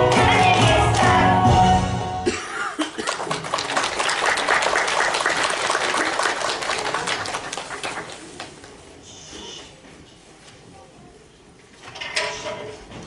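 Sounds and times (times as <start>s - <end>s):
audience applauding: 2.9s - 8.8s.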